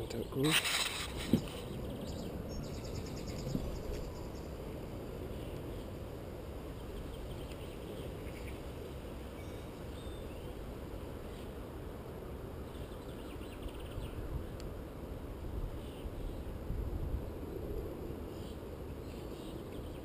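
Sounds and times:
low outdoor rumble: 0.0 - 20.0.

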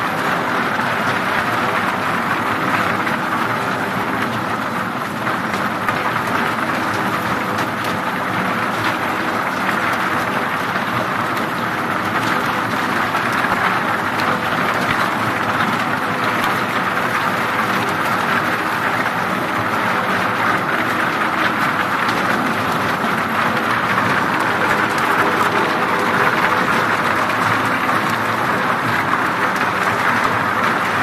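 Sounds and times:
low machine hum: 21.2 - 31.0.

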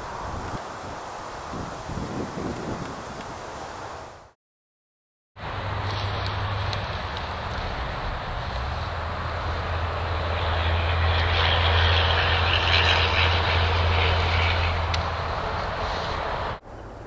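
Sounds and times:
engine drone: 5.4 - 17.0.

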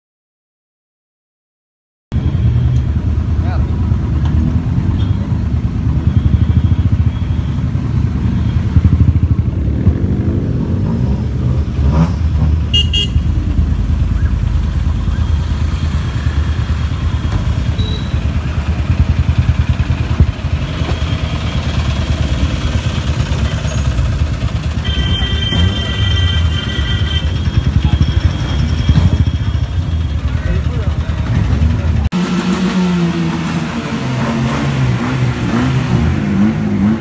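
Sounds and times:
loud car exhausts rumbling: 2.1 - 37.0.

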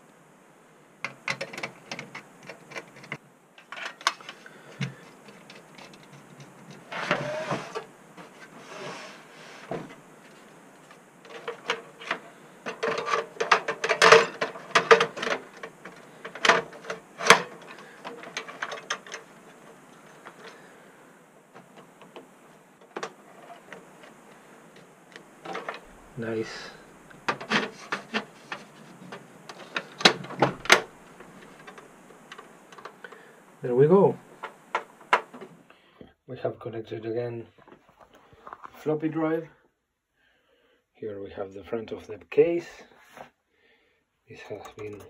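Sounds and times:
sheet metal clicks and clanks: 11.3 - 19.3.

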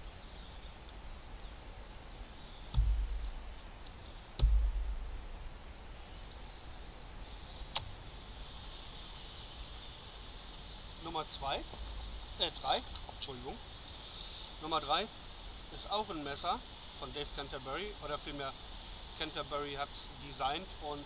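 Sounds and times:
faint birdsong: 0.0 - 21.0
dull low thuds: 2.6 - 6.0, 11.6 - 12.4.

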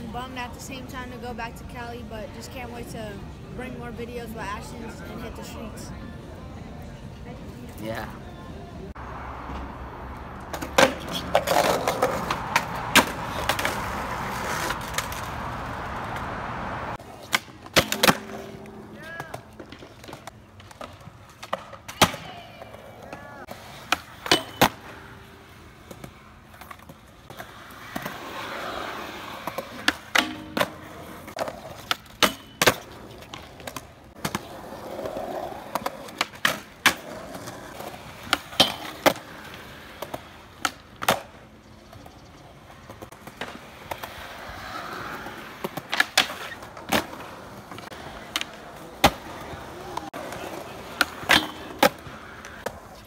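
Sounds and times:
skateboard wheels rolling: 0.0 - 53.0
skateboard tail popping and landing: 10.5 - 16.4, 17.1 - 24.9, 25.8 - 41.4, 42.9 - 52.8.

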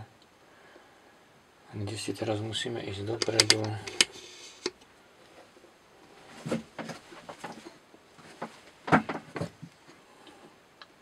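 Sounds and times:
knife blade clicking and knocking: 3.2 - 4.1.

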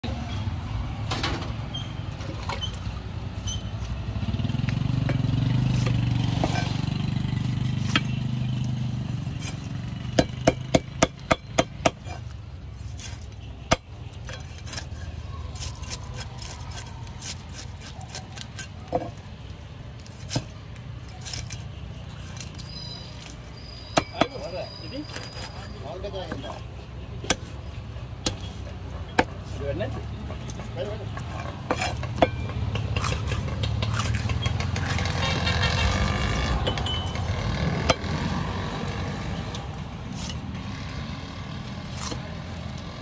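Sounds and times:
vehicle engine rumble passing: 0.0 - 11.6, 24.5 - 43.0.

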